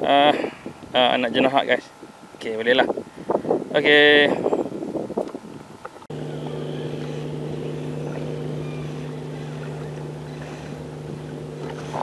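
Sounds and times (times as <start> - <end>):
choppy water: 3.2 - 12.0
boat motor running: 6.1 - 12.0.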